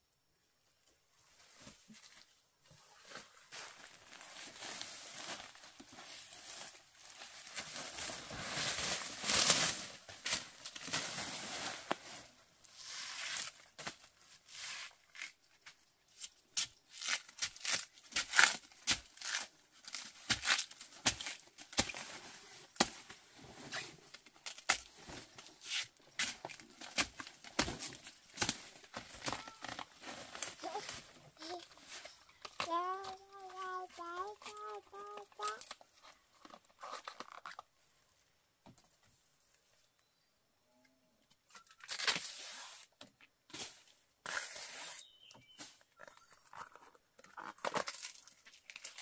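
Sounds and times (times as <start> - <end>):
banana sheaths tearing: 16.9 - 22.0.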